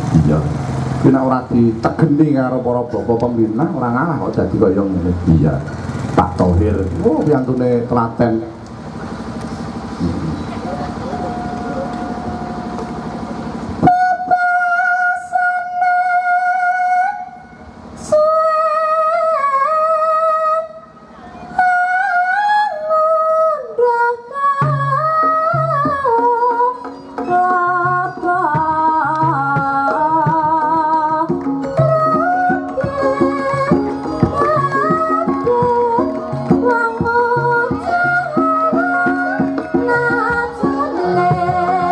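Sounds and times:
gamelan instruments: 0.0 - 14.0, 24.6 - 41.9
drum strokes: 5.2 - 14.1, 24.6 - 41.9
woman singing long wavering notes: 10.6 - 41.9.

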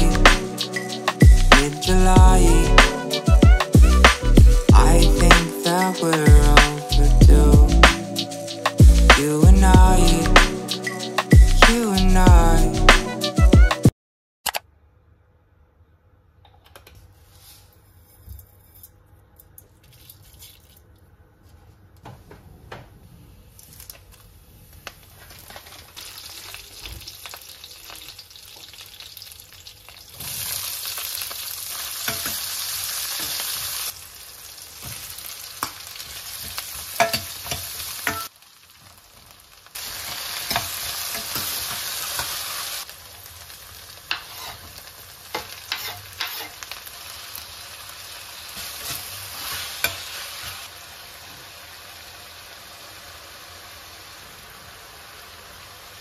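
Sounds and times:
food sizzling in oil: 24.8 - 56.0.

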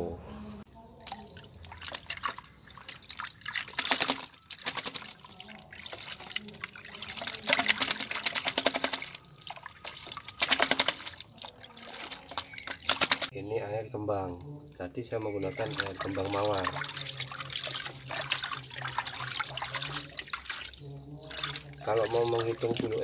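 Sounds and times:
water splashing in a tub: 1.0 - 13.4, 15.1 - 23.0.

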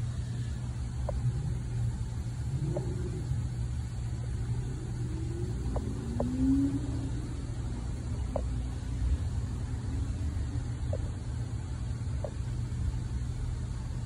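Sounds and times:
steady low rumble: 0.0 - 14.0
faint ticks: 0.9 - 1.8, 2.6 - 3.4, 5.0 - 6.6, 8.2 - 8.7, 10.8 - 11.2, 12.1 - 12.6.

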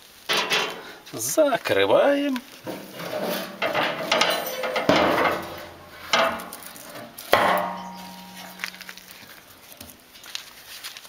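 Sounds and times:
ringing hum from steel: 0.3 - 1.0, 2.6 - 9.5
steel lid clanking: 0.3 - 1.1, 2.6 - 9.3.

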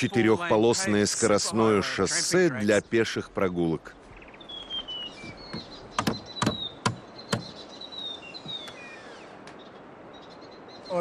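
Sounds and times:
birds singing: 0.0 - 11.0
sharp knocks: 5.5 - 7.6.

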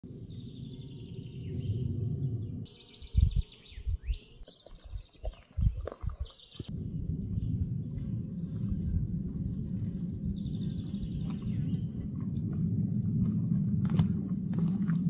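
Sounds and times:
low rumble on microphone: 0.1 - 4.2, 4.8 - 15.0.

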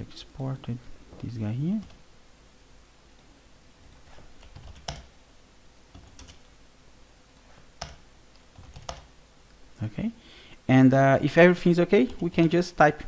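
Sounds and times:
typing on computer keyboard: 4.4 - 5.1, 5.9 - 6.5, 7.8 - 9.1.

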